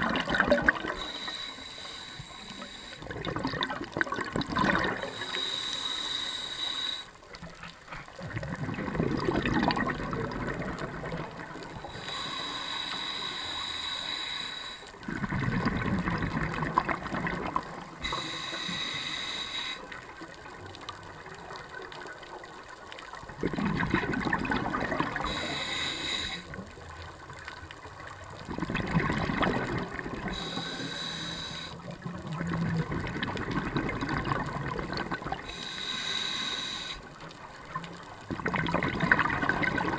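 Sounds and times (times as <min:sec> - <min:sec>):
exhaled bubbles burbling: 0:00.0 - 0:01.1, 0:03.0 - 0:05.4, 0:08.2 - 0:12.0, 0:15.0 - 0:18.2, 0:23.2 - 0:25.6, 0:28.1 - 0:30.6, 0:31.8 - 0:35.8, 0:37.6 - 0:39.9
regulator inhale hiss: 0:00.8 - 0:03.2, 0:05.0 - 0:07.3, 0:11.7 - 0:15.1, 0:18.0 - 0:20.1, 0:25.2 - 0:26.8, 0:30.2 - 0:31.9, 0:35.4 - 0:37.3.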